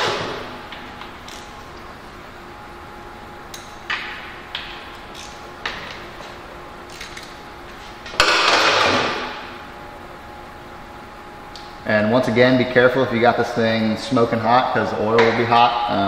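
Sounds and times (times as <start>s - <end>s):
wrench clicks: 1.3s - 1.5s, 5.1s - 5.4s, 6.9s - 7.3s.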